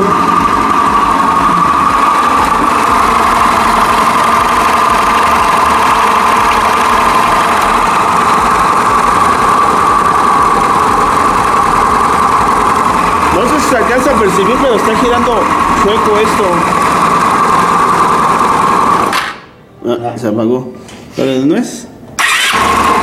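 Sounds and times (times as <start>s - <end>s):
scooter engine idling: 0.0s - 19.1s, 22.2s - 23.0s
man talking: 13.3s - 16.8s, 19.8s - 21.9s.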